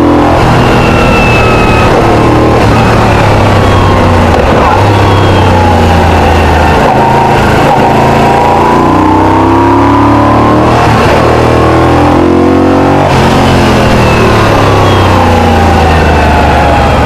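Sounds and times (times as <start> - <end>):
rushing wind: 0.0 - 8.9
motorcycle engine: 0.0 - 17.0.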